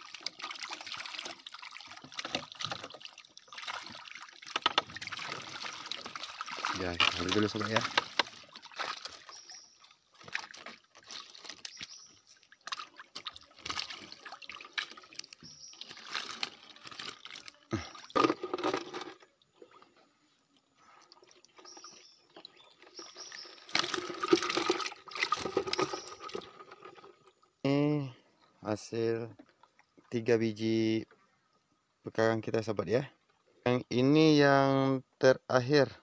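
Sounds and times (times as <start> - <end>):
water splashing off fish trap: 23.6 - 26.7.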